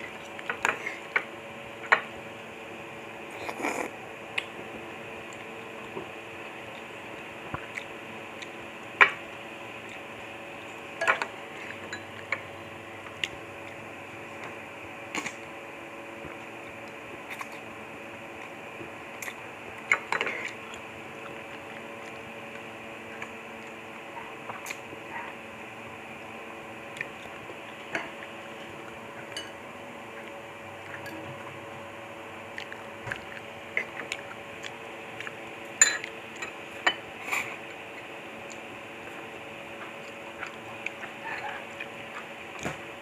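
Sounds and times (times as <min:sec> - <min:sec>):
steady background hum: 0:00.0 - 0:43.0
person eating noodles: 0:03.3 - 0:04.4.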